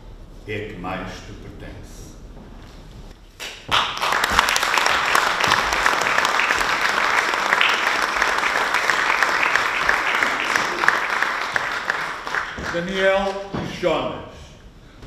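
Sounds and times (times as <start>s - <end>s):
audience applauding: 3.4s - 13.5s.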